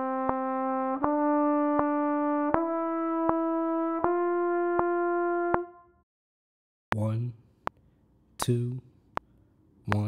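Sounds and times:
trumpet playing sustained notes: 0.0s - 6.0s.

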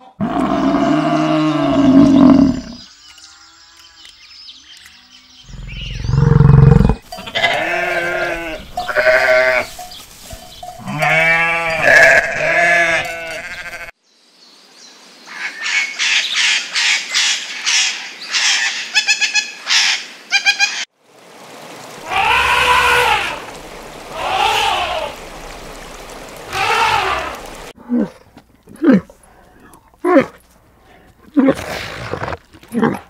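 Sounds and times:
animal bleats: 6.4s - 9.9s, 10.8s - 13.9s, 22.0s - 23.4s, 24.1s - 25.2s, 26.5s - 27.4s
running water: 20.9s - 27.8s.

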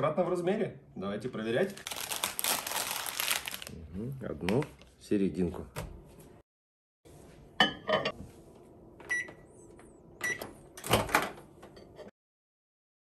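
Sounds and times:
keypad beeps: 9.1s - 9.4s.

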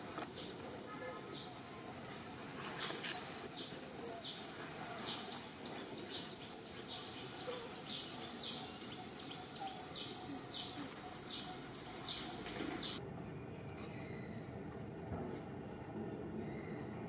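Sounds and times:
high-pitched insect chorus: 0.0s - 13.0s.

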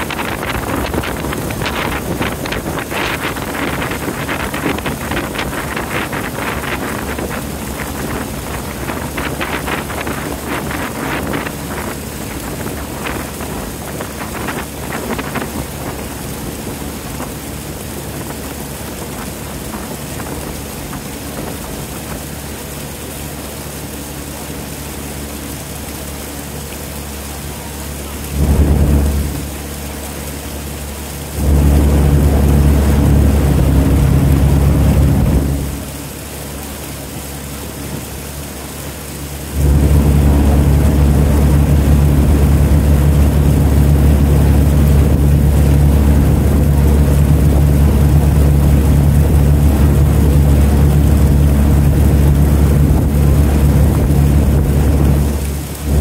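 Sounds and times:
boat engine hum: 0.0s - 56.0s
water splashing against boat hull: 0.0s - 56.0s
loud low thump: 28.3s - 29.7s.

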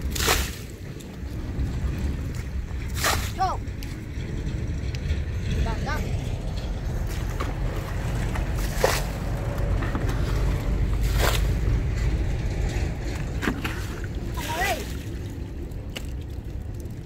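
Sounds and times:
splashes in muddy water: 0.0s - 1.0s, 2.4s - 3.4s, 13.4s - 16.2s
wind buffeting microphone: 0.0s - 17.0s.

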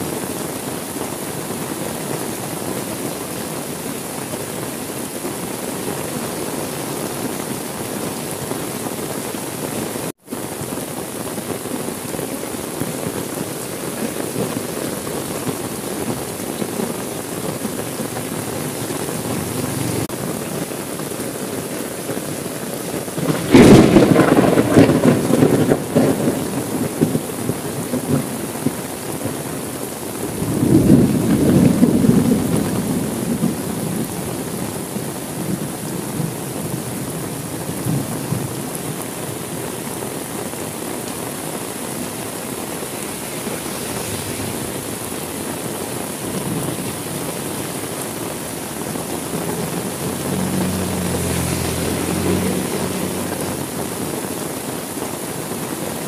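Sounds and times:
heavy rain: 0.0s - 56.0s
thunder rumbling: 14.0s - 20.5s, 23.0s - 38.8s, 41.1s - 54.8s.

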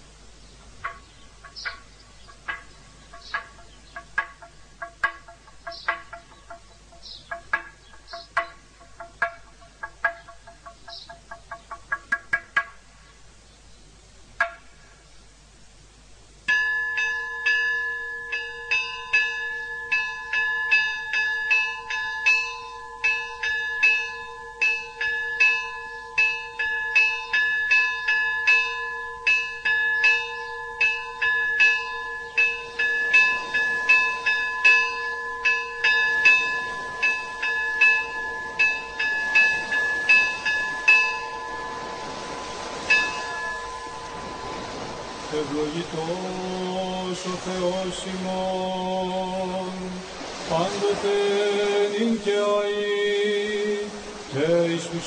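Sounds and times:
church bells ringing: 16.5s - 46.3s.

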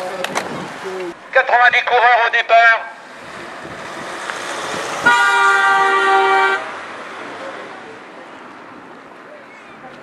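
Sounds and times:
car passing close: 3.0s - 9.0s
car horn blast: 5.0s - 6.7s.

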